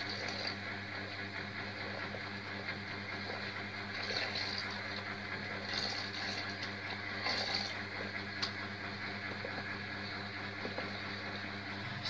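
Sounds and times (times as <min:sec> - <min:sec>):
steady low hum: 0:00.0 - 0:12.0
water pouring and splashing: 0:03.9 - 0:05.0, 0:05.6 - 0:07.8.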